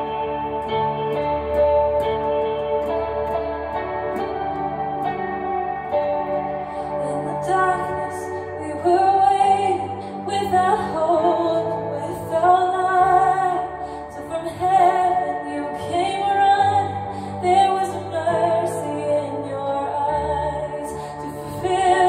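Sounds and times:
sustained bass and accompaniment: 0.0s - 22.0s.

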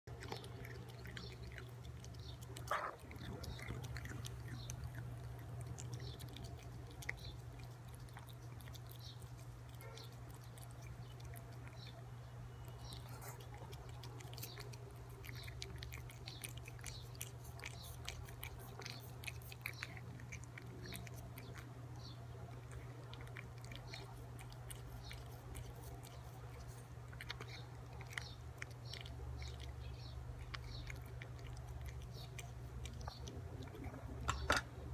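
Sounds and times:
cat lapping from spoon: 0.1s - 11.6s
low steady hum: 0.1s - 34.9s.

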